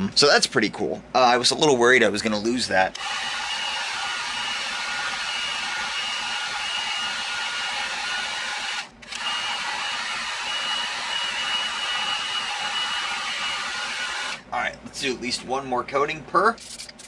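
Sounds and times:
heat gun blowing whine: 3.0 - 14.5.

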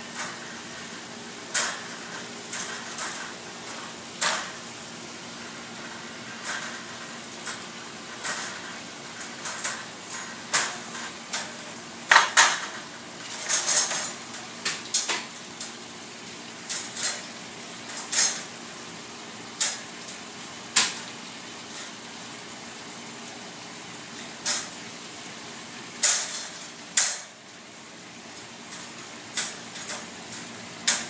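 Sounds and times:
wire dog crate clanking: 1.5 - 4.6, 18.0 - 18.5.

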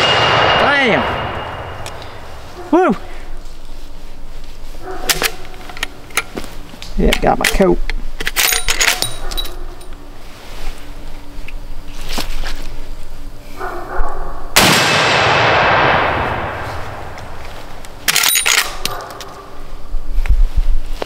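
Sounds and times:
rifle shot echoing: 0.0 - 2.4, 14.6 - 17.4
rifle action clicks and clacks: 7.0 - 9.6, 18.1 - 19.4.

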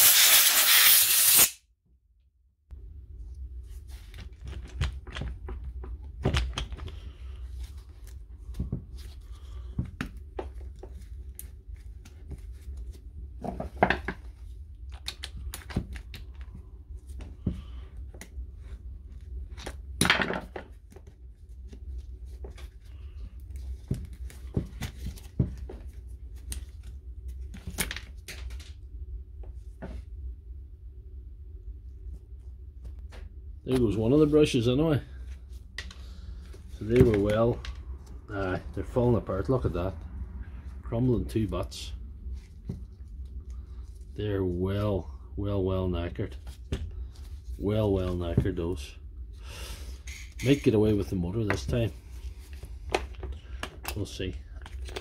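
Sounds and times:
loud hiss: 0.0 - 1.6
low hum: 28.6 - 50.4.

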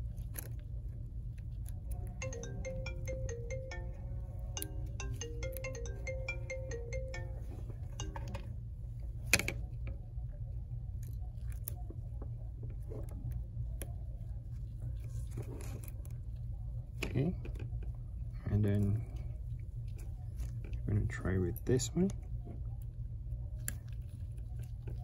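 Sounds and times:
electronic melody: 2.2 - 8.4.

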